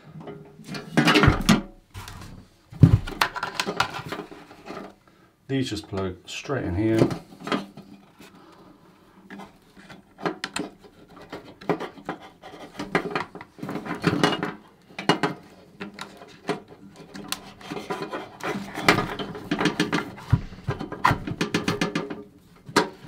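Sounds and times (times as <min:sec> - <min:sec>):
plastic rubbing: 0:15.4 - 0:23.0.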